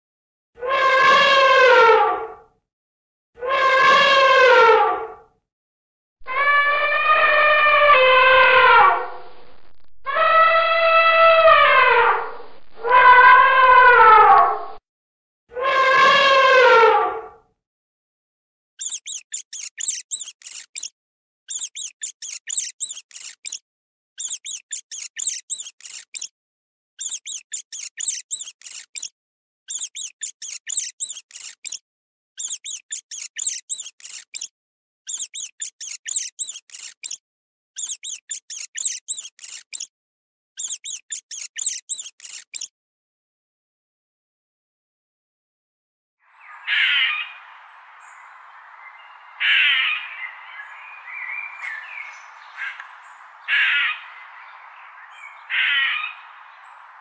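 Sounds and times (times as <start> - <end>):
rat squeaking: 18.8 - 20.9, 21.5 - 23.6, 24.2 - 26.3, 27.0 - 29.1, 29.7 - 31.8, 32.4 - 34.5, 35.1 - 37.2, 37.8 - 39.9, 40.6 - 42.7.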